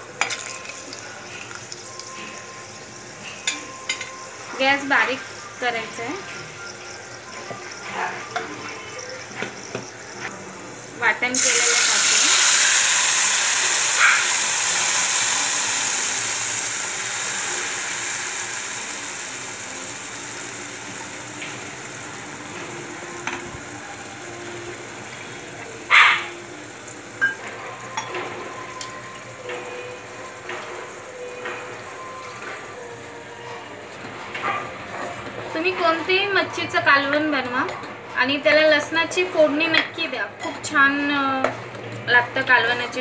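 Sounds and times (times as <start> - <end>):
paste sizzling in hot oil: 0.2 - 4.5, 11.3 - 32.7.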